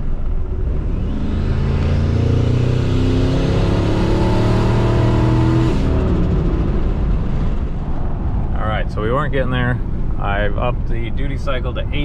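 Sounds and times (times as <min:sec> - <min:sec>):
truck engine accelerating: 0:00.0 - 0:12.0.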